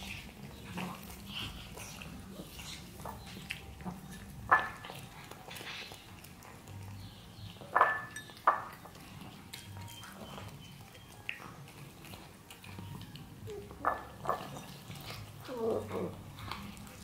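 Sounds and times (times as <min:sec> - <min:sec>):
cats crunching dried fish: 0:00.0 - 0:17.0
glass bowl clinking: 0:07.7 - 0:08.8.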